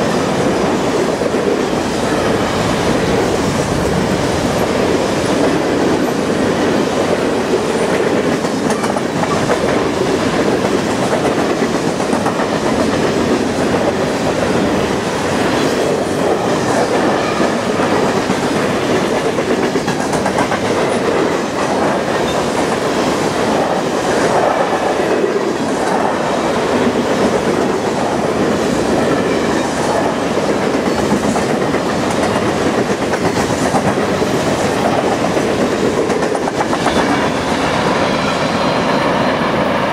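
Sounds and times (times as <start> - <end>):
train wheels rumbling on rails: 0.0 - 39.9
train wheel clicks: 7.5 - 14.1, 16.2 - 23.0, 29.5 - 37.6.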